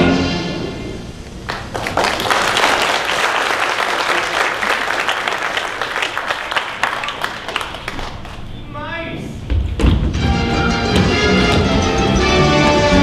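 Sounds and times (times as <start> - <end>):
audience applauding: 1.4 - 8.5.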